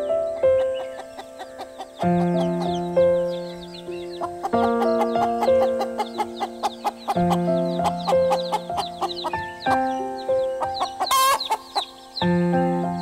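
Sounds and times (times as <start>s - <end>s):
background music chords: 0.0s - 13.0s
chick peeps: 0.0s - 13.0s
cartoon hen clucks: 4.2s - 9.9s, 10.6s - 11.9s.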